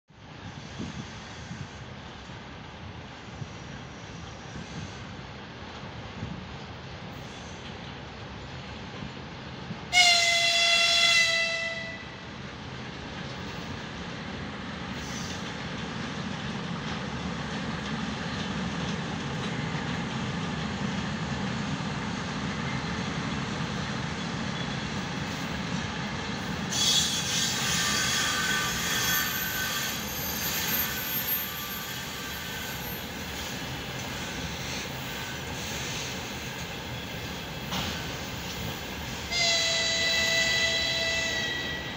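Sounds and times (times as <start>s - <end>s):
train rumbling past: 0.1s - 41.9s
train wheels squealing: 7.1s - 7.7s, 14.9s - 15.8s, 22.1s - 41.9s
locomotive whistle: 9.9s - 12.2s, 26.7s - 33.2s, 39.3s - 41.9s.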